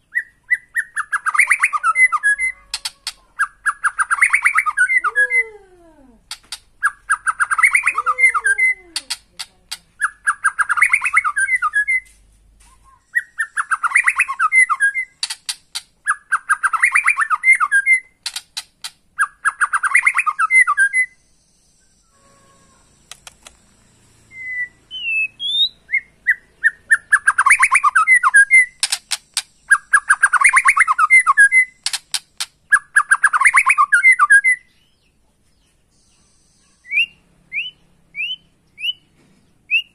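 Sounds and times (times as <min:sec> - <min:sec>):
bird whistled notes: 0:13.0 - 0:15.2, 0:24.3 - 0:28.8
bird sharp clicks: 0:15.2 - 0:15.9, 0:18.2 - 0:19.0, 0:23.1 - 0:23.6, 0:28.8 - 0:31.0, 0:31.8 - 0:33.5
bird rattling call: 0:28.8 - 0:32.6.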